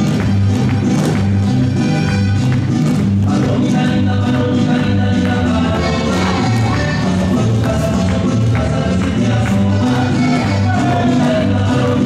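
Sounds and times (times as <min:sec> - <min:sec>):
bass line: 0:00.0 - 0:12.0
folk dance music: 0:00.0 - 0:12.0.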